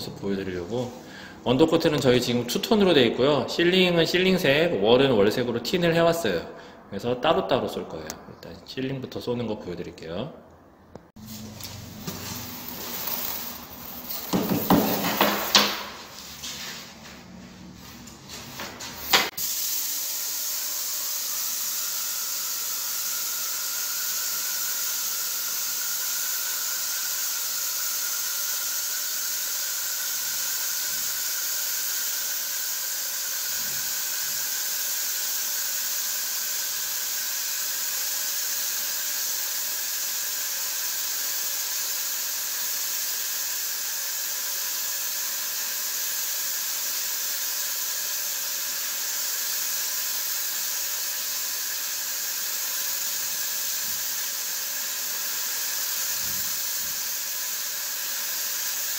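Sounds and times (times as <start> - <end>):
paint sprayer hissing: 11.2 - 17.2, 17.8 - 58.9.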